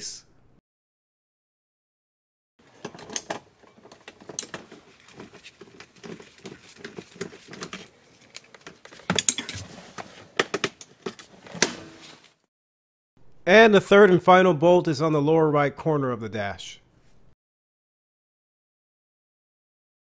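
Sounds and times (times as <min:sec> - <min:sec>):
hand tools clicking and rattling: 0:02.6 - 0:11.8.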